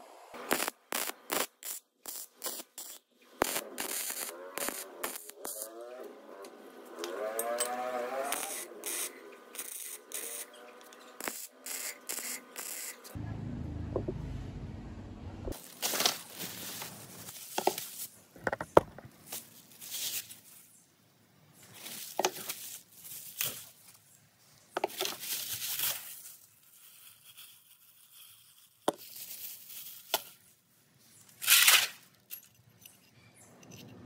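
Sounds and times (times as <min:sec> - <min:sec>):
plastic bags crinkling and tearing: 0:15.6 - 0:18.1.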